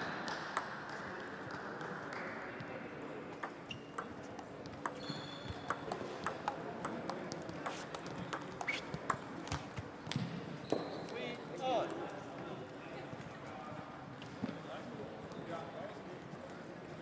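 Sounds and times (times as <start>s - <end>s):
faint clicks from other tables: 0.0s - 2.8s, 3.4s - 12.6s
table tennis ball clicks: 3.3s - 10.2s.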